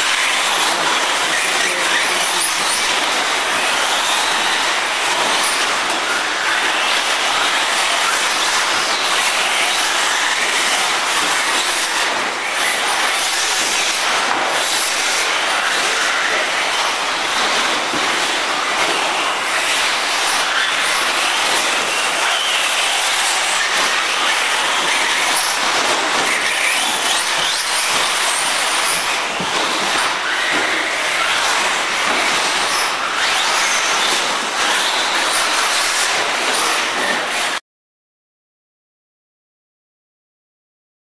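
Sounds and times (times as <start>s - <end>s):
electric toy car motors whirring: 0.0s - 37.6s.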